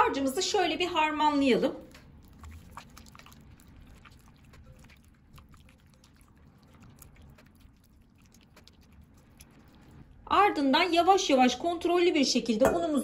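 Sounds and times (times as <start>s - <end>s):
wet squelching and small clicks: 1.8s - 10.1s.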